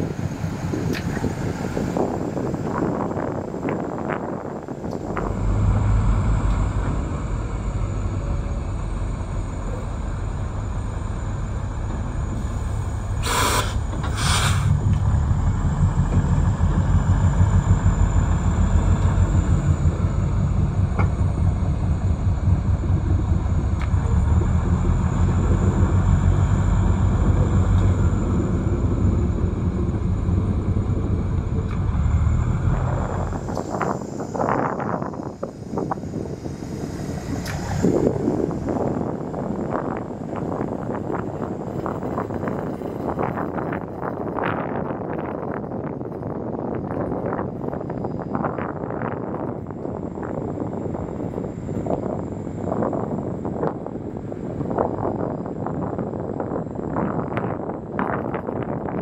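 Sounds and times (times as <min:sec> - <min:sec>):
diesel locomotive engine rumbling: 0:00.0 - 0:59.0
short hiss bursts: 0:13.2 - 0:14.8.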